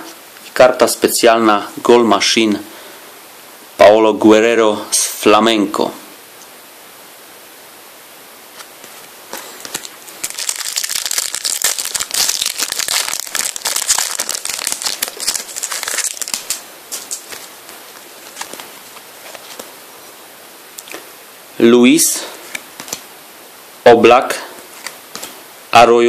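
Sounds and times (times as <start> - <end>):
cards rustling: 8.6 - 19.8, 22.4 - 23.0
foil wrapper crinkling: 9.4 - 19.7.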